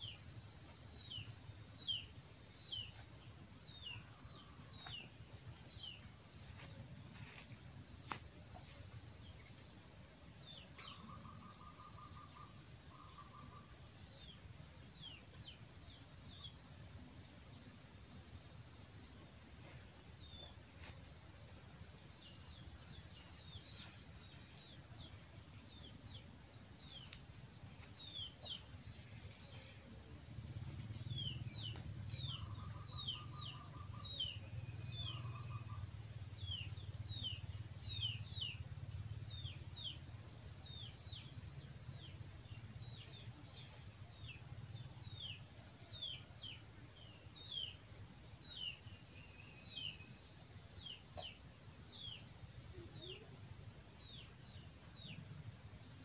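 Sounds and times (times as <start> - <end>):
high-pitched insect drone: 28.0 - 45.4.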